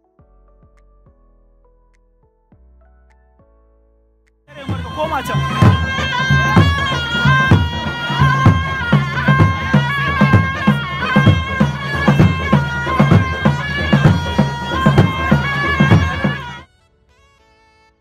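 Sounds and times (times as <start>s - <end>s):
high held-note melody: 4.5s - 16.6s
steady drum beat: 4.5s - 16.6s.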